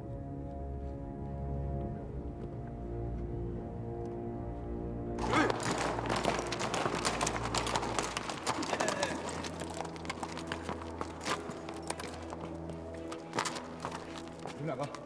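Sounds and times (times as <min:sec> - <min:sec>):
background music: 0:00.0 - 0:15.0
hooves clattering on dirt road: 0:05.2 - 0:15.0.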